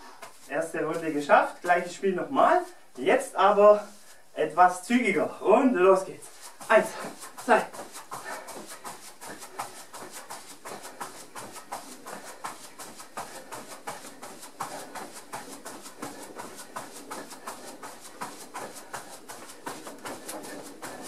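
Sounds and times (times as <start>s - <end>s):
hard breathing: 0.0s - 0.5s, 2.6s - 3.0s, 3.8s - 4.4s, 6.2s - 21.0s
costume rustling: 0.0s - 21.0s.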